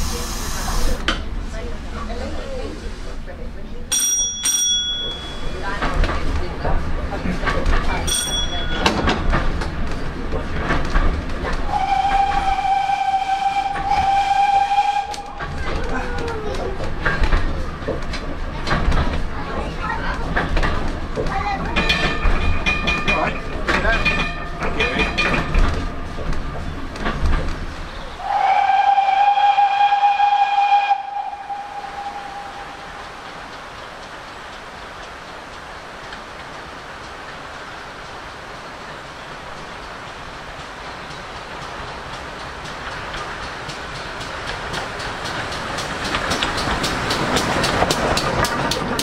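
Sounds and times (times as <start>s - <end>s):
train coach rumbling: 0.0s - 49.0s
wheels knocking over rail joints: 4.0s - 12.6s, 15.0s - 28.2s, 40.5s - 49.0s
steam whistle blast: 11.7s - 15.5s, 28.2s - 33.1s.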